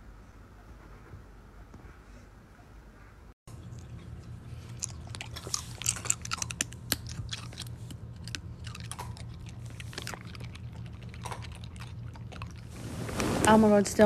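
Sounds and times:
dog crunching a treat: 3.6 - 12.7.

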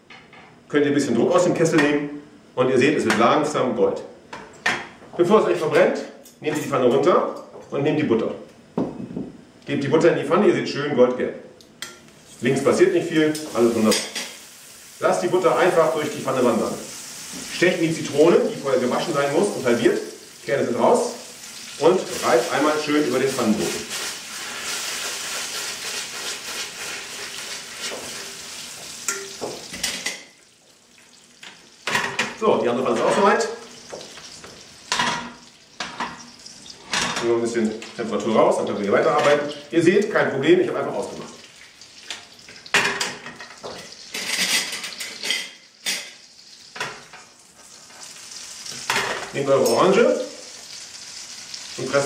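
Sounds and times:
caramel sizzling in a pan: 12.2 - 31.9, 33.1 - 36.9, 45.0 - 52.0.

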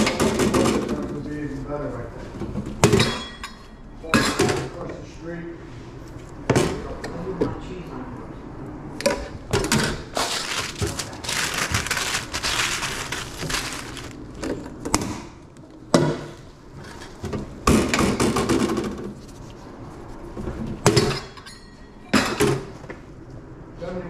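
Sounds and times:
paper rustling and crinkling: 10.1 - 14.5.

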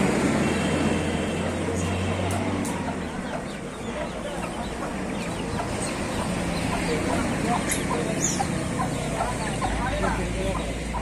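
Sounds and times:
steady background noise: 0.0 - 11.0
chicks peeping: 1.4 - 11.0
hen clucking: 2.3 - 11.0.

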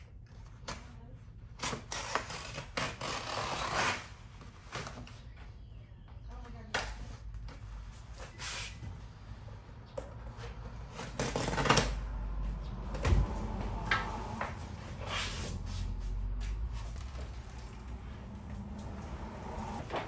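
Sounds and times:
vinyl sheet rustling: 13.5 - 20.0.

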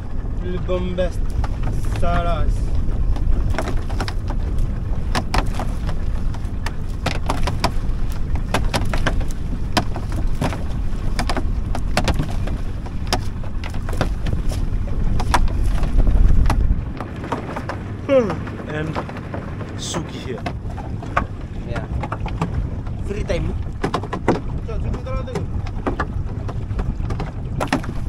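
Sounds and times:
steady low rumble: 0.0 - 28.0
water splashing: 0.0 - 28.0.

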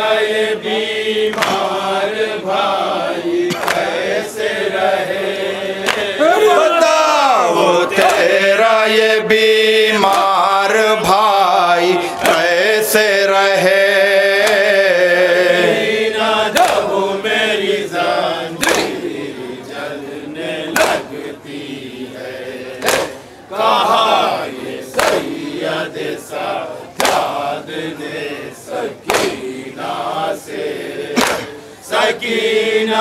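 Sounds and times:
men chanting in unison: 0.0 - 33.0
hands striking chests: 22.8 - 23.2, 31.2 - 31.5.

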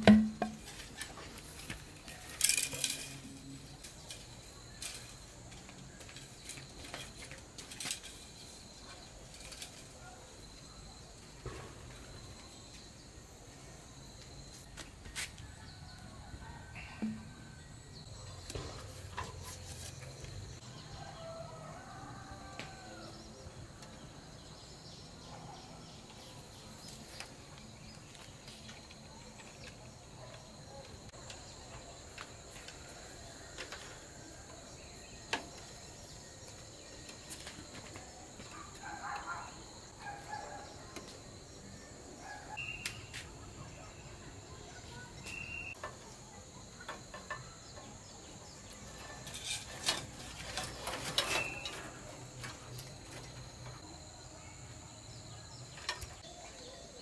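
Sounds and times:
high insect drone: 0.0 - 57.0
branch rustling and clicking: 0.1 - 10.1
bird chirps: 42.6 - 43.2, 44.9 - 45.8.

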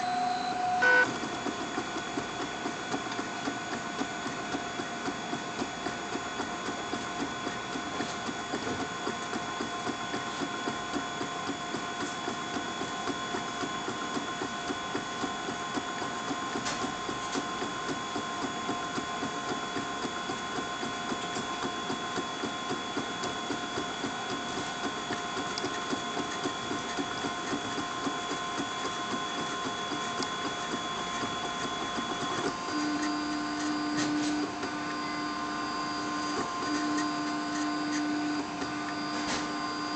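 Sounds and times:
stepper motors whining: 0.0 - 1.2.

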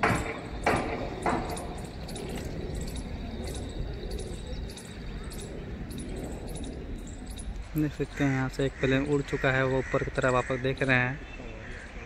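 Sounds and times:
low outdoor rumble: 0.0 - 11.8.

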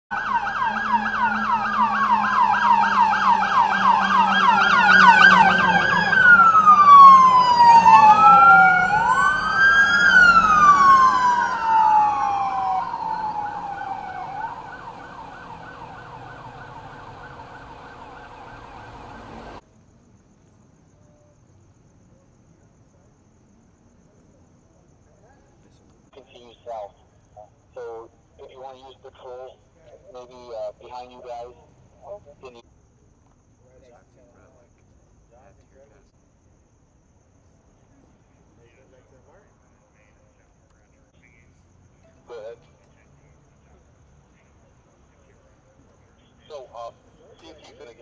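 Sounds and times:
police sirens wailing: 0.1 - 19.6.

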